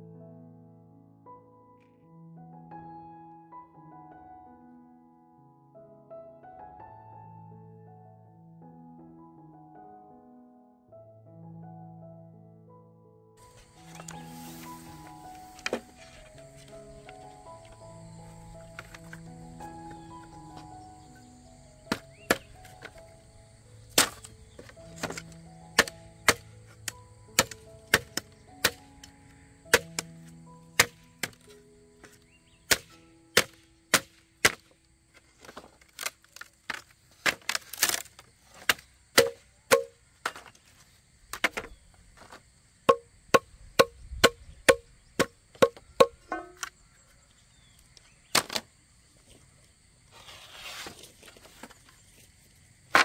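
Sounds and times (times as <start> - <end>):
soft background music: 0.0 - 35.1
blade chopping wood: 15.6 - 16.8, 21.9 - 23.0, 23.9 - 28.8, 30.8 - 34.8, 35.4 - 40.5, 41.3 - 46.7, 48.3 - 48.7.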